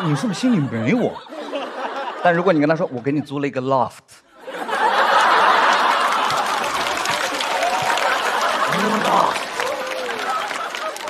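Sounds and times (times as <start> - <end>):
studio audience laughing: 0.0 - 3.6, 4.3 - 11.0.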